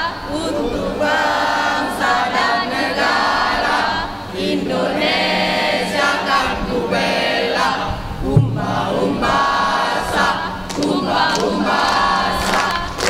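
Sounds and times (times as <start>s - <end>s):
mixed choir singing: 0.0s - 13.0s
low thump: 8.2s - 10.1s.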